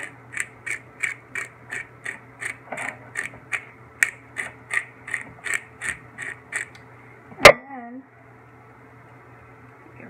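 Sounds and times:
pepper grinder ratcheting clicks: 0:00.0 - 0:06.8.

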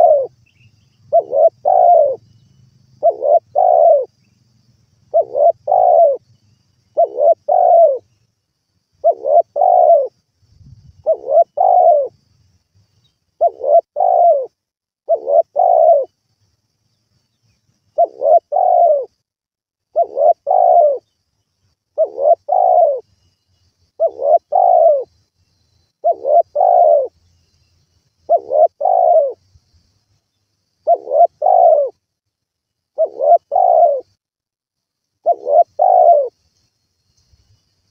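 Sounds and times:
dove cooing: 0:00.0 - 0:00.4, 0:01.0 - 0:02.2, 0:03.0 - 0:04.2, 0:05.1 - 0:06.2, 0:06.9 - 0:08.1, 0:09.0 - 0:10.2, 0:11.0 - 0:12.2, 0:13.4 - 0:16.1, 0:18.0 - 0:19.2, 0:19.9 - 0:21.1, 0:22.0 - 0:23.1, 0:24.0 - 0:25.1, 0:26.0 - 0:27.2, 0:28.3 - 0:29.4, 0:30.8 - 0:32.0, 0:33.0 - 0:34.2, 0:35.2 - 0:36.4.

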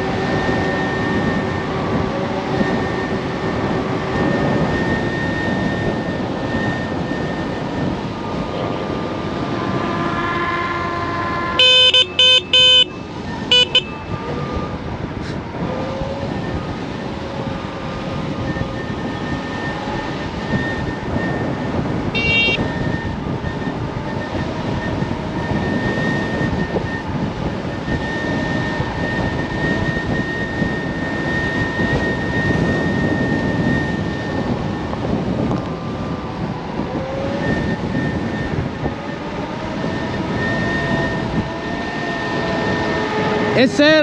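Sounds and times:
electric motor whine: 0:00.0 - 0:44.0
rushing wind noise: 0:00.0 - 0:44.0
high-pitched tone: 0:04.2 - 0:14.9, 0:18.4 - 0:23.6, 0:43.6 - 0:44.0.

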